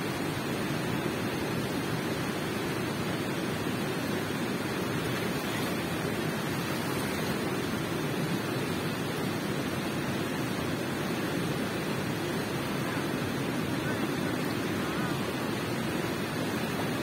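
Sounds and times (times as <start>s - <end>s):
water rushing in a cave: 0.0s - 17.0s.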